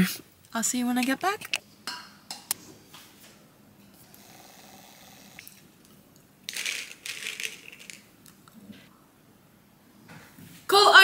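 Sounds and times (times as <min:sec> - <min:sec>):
capsules rattling in bottle: 0:06.5 - 0:08.1.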